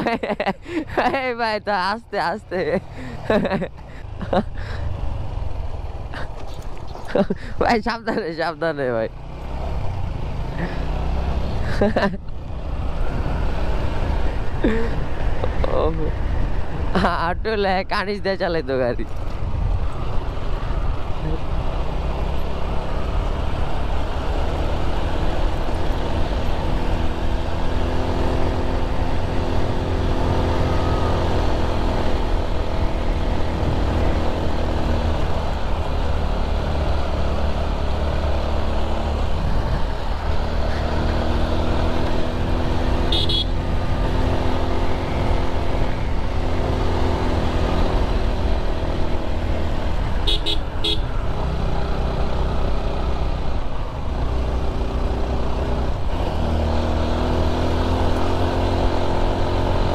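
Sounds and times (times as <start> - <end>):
motorcycle engine running: 19.0 - 59.9
wind noise on microphone: 39.3 - 40.0
horn beeps: 43.1 - 43.6.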